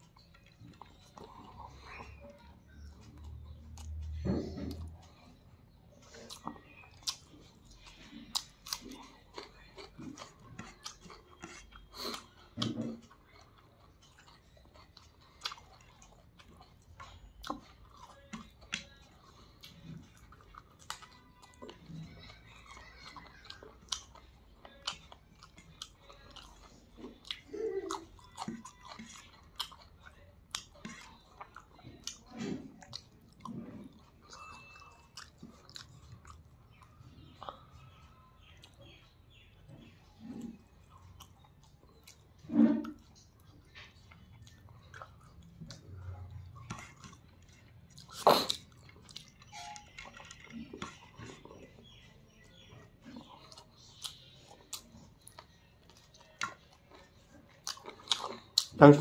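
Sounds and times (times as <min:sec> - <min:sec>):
man chewing: 0:00.0 - 0:59.0.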